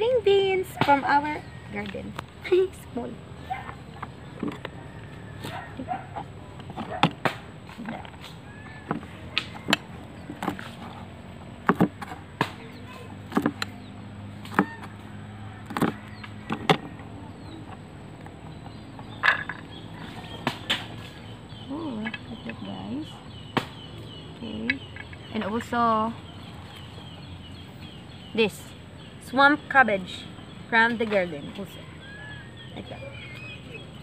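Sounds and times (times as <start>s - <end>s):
cleaver chopping on plastic board: 8.8s - 10.8s, 11.6s - 12.6s, 13.2s - 13.7s, 14.4s - 14.9s, 15.7s - 17.0s.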